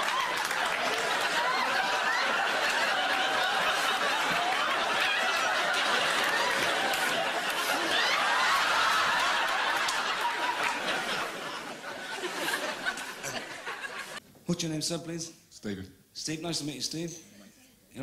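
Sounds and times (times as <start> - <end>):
audience laughing: 0.0 - 14.2.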